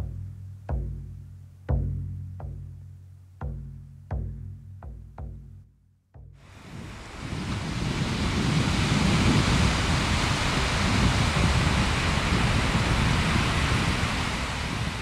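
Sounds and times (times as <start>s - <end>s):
waves breaking on beach: 6.5s - 15.0s.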